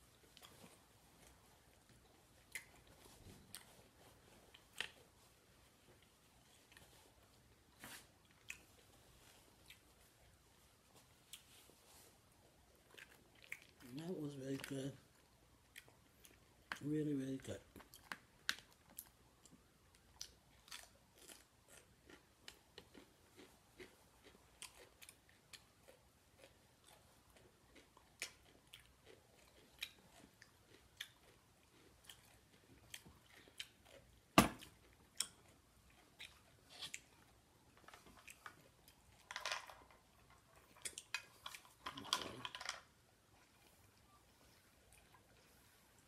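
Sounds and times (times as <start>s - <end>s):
wet chewing and lip smacks: 17.7s - 39.3s.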